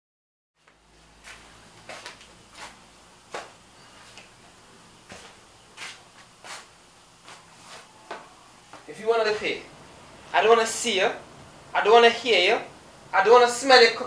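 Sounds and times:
sandals slapping on tiled floor: 0.6 - 4.4, 5.1 - 8.9.

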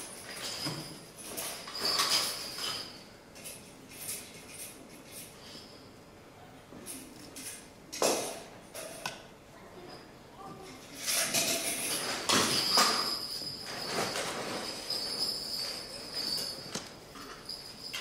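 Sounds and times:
small objects clinking and rattling: 0.0 - 5.7, 11.0 - 18.0
objects clattering: 0.0 - 5.9, 10.7 - 18.0.

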